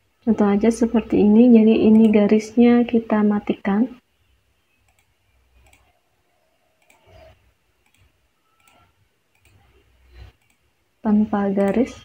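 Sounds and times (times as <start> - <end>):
computer mouse clicks: 1.8 - 2.2, 4.8 - 6.0, 6.7 - 10.7, 11.6 - 11.9.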